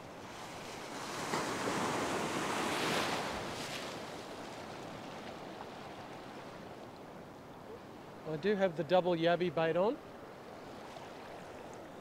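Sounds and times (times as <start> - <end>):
wave breaking and washing in: 0.0 - 8.8.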